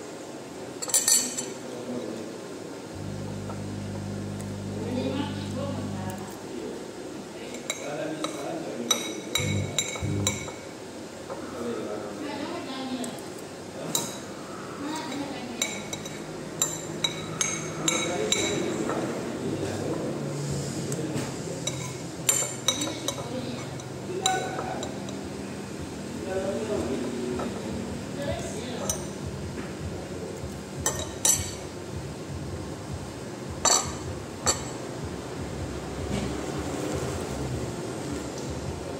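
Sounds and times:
steady background noise: 0.0s - 38.9s
utensils clinking against bowl: 0.8s - 1.6s, 7.5s - 10.6s, 21.6s - 25.2s
utensil clinking against a dish: 7.5s - 10.6s, 15.1s - 19.0s, 21.6s - 25.3s, 30.8s - 31.6s, 33.6s - 34.8s.

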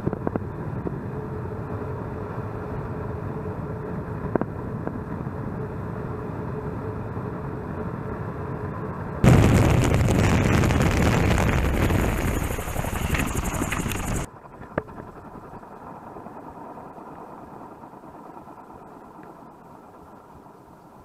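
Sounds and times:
loud wind rush: 9.2s - 14.3s
freewheeling rotor rush: 9.4s - 16.2s.

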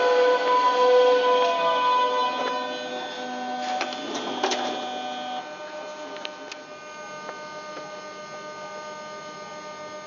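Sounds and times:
electric train hum and whine: 0.0s - 10.0s
pitched tone: 0.1s - 5.4s.

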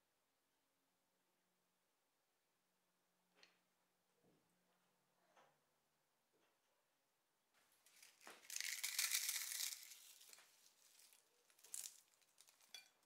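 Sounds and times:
fried snack crackling crunch: 7.9s - 13.0s.

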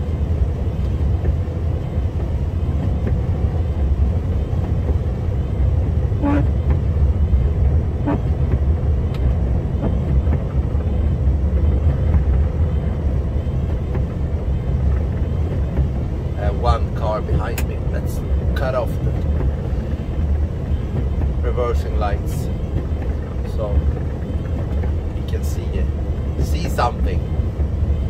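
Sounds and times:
truck engine rumble and road noise: 0.0s - 28.0s.

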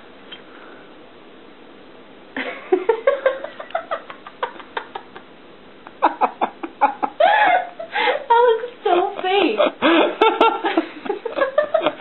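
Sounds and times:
person giggling and laughing: 2.4s - 5.3s, 5.9s - 8.3s, 8.9s - 12.0s.

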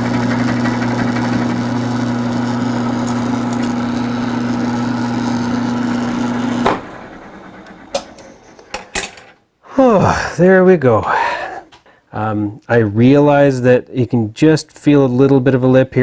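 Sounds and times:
milling machine motor hum: 0.0s - 8.7s
end mill cutting steel: 0.0s - 9.3s.

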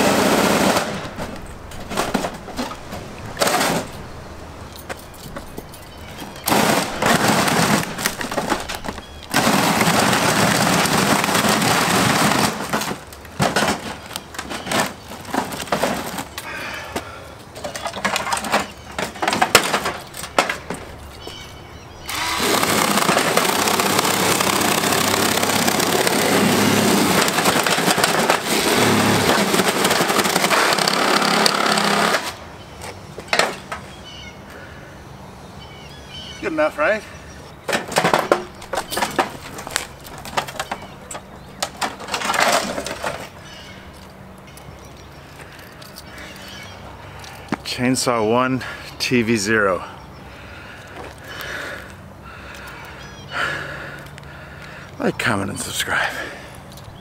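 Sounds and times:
chainsaw cutting: 0.0s - 1.2s, 6.4s - 13.1s, 22.0s - 32.4s.

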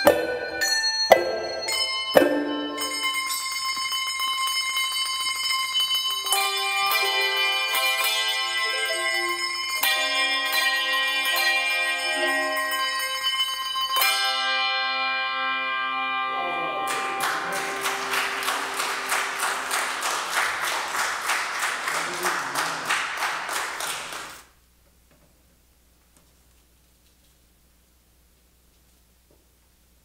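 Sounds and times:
handbell choir playing: 0.0s - 20.6s.

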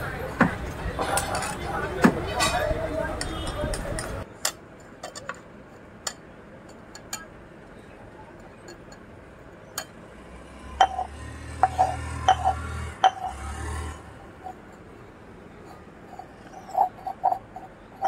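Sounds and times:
metal spoon beating eggs in bowl: 10.8s - 13.6s, 14.2s - 18.0s.

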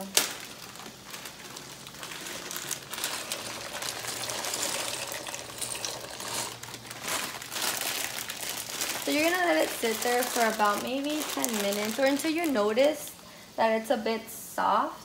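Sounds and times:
plastic bag crinkling: 0.0s - 13.2s
pasta rattling into pot: 0.3s - 12.9s
boiling water bubbling: 0.4s - 12.8s.

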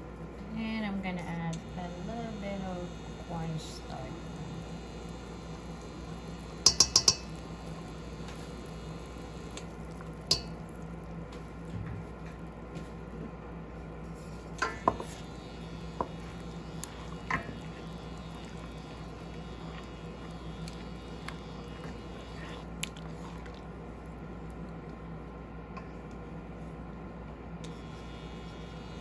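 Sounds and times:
sauce boiling in a covered pan: 1.6s - 25.2s, 27.7s - 29.0s
cookware clicks: 6.6s - 7.3s.

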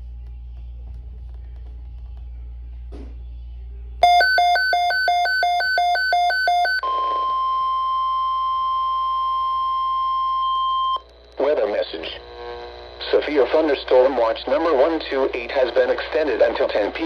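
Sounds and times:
rapid two-tone alarm beep: 4.0s - 11.0s.

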